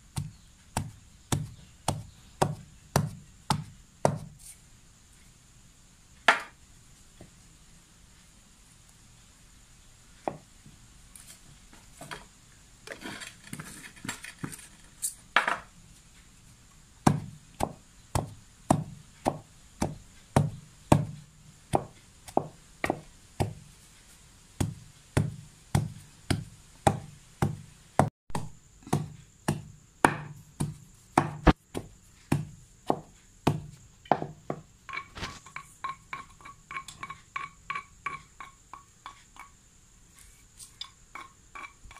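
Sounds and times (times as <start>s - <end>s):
wooden pestle pounding in mortar: 0.1s - 4.4s, 17.0s - 23.6s, 24.6s - 39.5s.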